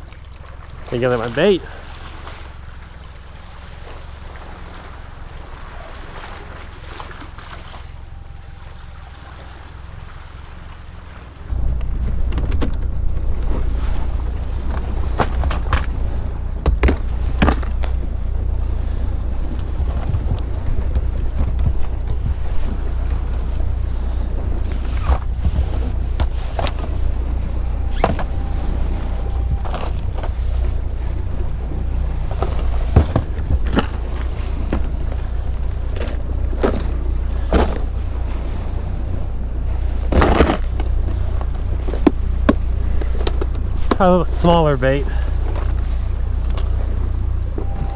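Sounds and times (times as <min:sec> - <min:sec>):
wind rumble on microphone: 0:00.0 - 0:47.9.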